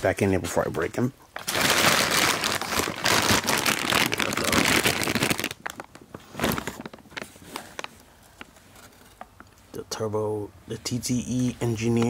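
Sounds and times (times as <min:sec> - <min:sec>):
plastic bag and paper rustling: 0:00.5 - 0:09.5.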